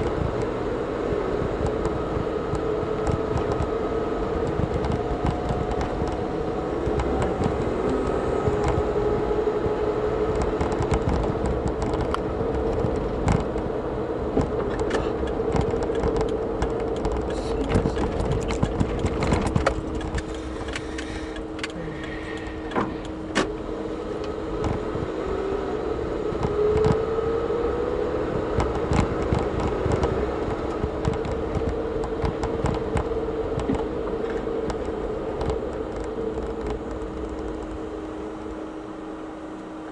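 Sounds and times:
car engine and road hum: 0:00.0 - 0:39.9
clicks and knocks in cabin: 0:14.4 - 0:23.5.

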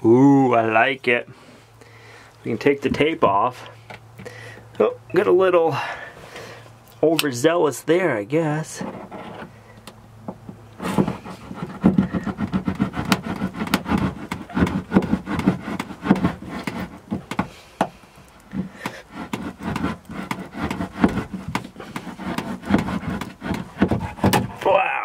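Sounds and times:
tape peeling and scraping: 0:08.6 - 0:24.7.

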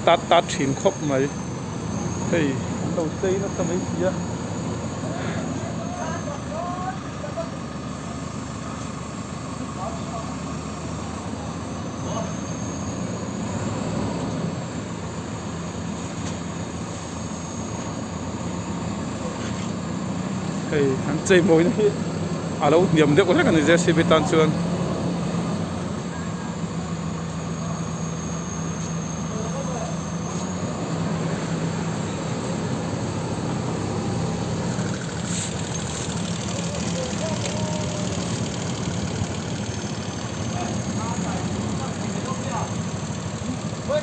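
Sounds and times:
diesel engine rumbling: 0:00.0 - 0:44.0.

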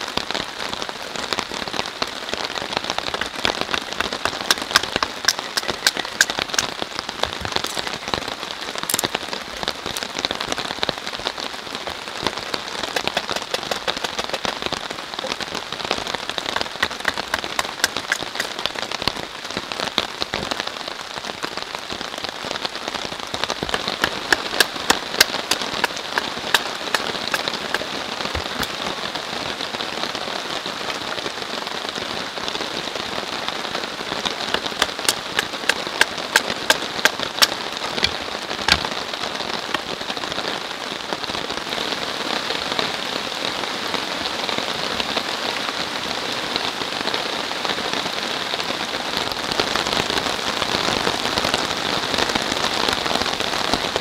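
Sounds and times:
heavy rain falling: 0:00.0 - 0:54.0
sharp taps: 0:03.2 - 0:06.7, 0:12.9 - 0:14.6, 0:16.6 - 0:18.6.

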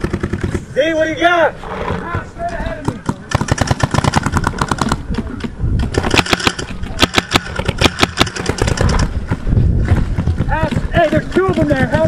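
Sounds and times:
paintball marker firing rapidly: 0:00.0 - 0:00.7, 0:02.8 - 0:12.0.

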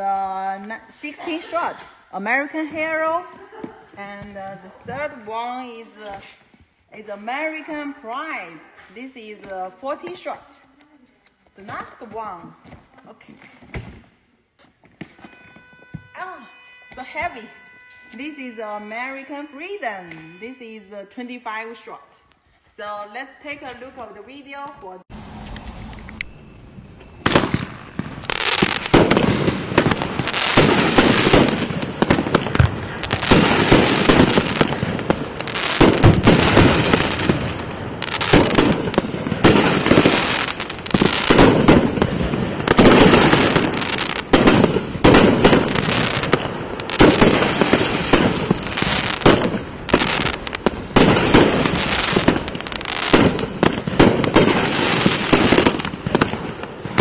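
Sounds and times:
fireworks firing and bursting: 0:27.1 - 0:57.0.

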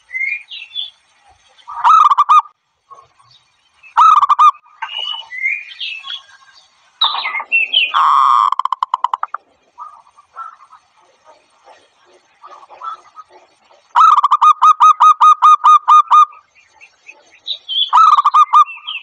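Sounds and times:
faint bird chirps: 0:00.0 - 0:19.0
dove staccato cooing: 0:04.0 - 0:05.2, 0:07.1 - 0:18.8.

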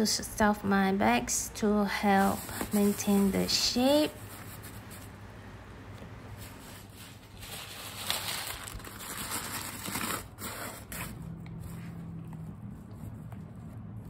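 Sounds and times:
bubble wrap crinkling: 0:06.4 - 0:11.4.

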